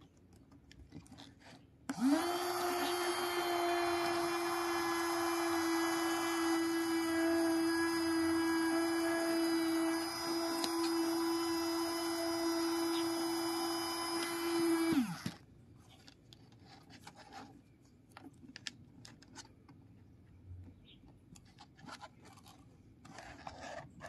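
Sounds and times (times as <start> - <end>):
small vacuum motor humming: 1.9 - 15.4
plastic clicks and rubbing: 15.2 - 24.0.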